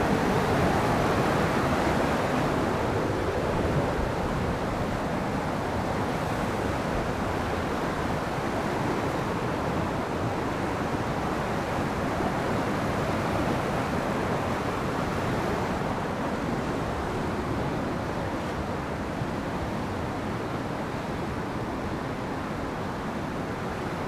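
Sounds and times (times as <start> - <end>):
river rushing: 0.0 - 24.0.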